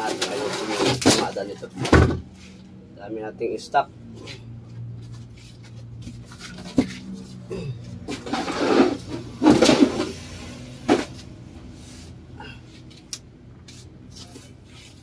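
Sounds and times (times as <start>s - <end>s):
steady low hum: 1.0s - 15.0s
wooden scraping and knocking: 8.0s - 10.2s.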